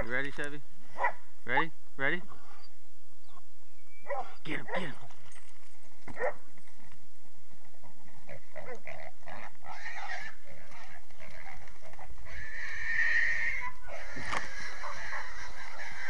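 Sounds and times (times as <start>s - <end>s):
hog squealing: 8.6s - 11.6s, 12.2s - 16.0s.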